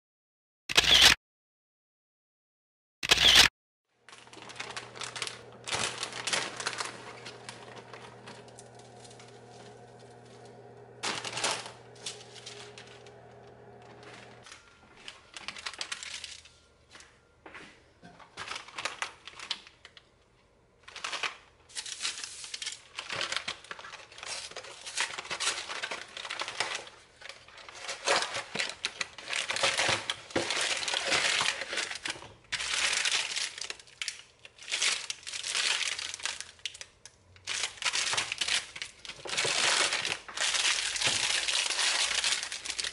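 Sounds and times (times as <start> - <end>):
food packaging crinkling: 4.0 - 16.7, 18.2 - 20.1, 20.8 - 42.9
steady low hum: 4.4 - 14.4.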